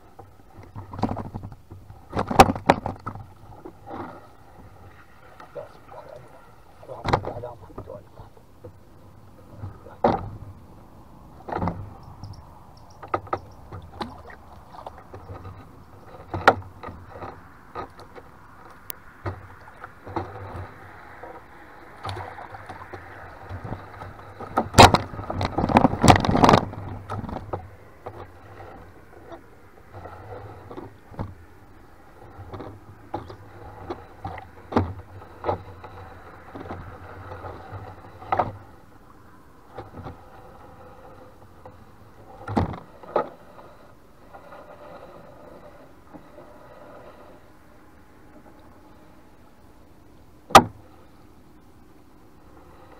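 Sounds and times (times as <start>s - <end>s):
knocks against wooden hull: 6.9s - 7.9s, 9.6s - 10.5s, 24.4s - 28.2s, 42.4s - 43.2s, 50.5s - 50.8s.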